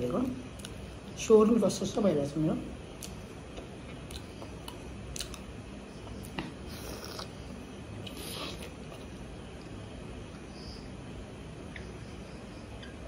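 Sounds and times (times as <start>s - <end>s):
steady low hum: 0.0s - 13.0s
mouth clicks: 3.0s - 7.4s
chewing: 3.0s - 10.5s.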